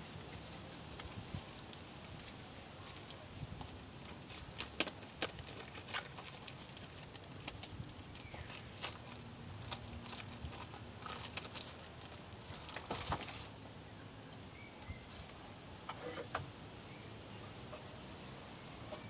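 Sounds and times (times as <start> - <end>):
plastic packaging crinkling: 4.0 - 13.5.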